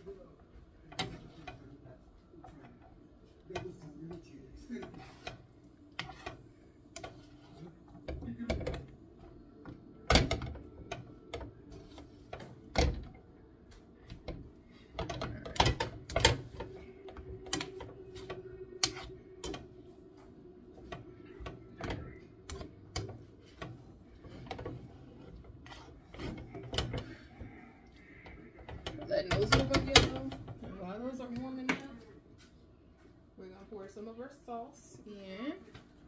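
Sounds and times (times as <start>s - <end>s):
utensils scraping a skillet: 3.5s - 8.9s, 10.2s - 13.2s, 14.2s - 19.7s, 20.8s - 30.8s.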